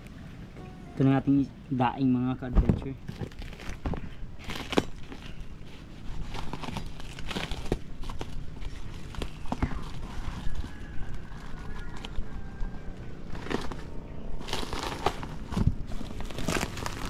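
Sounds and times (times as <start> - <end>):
plastic wrap crinkling and tearing: 3.0 - 17.0.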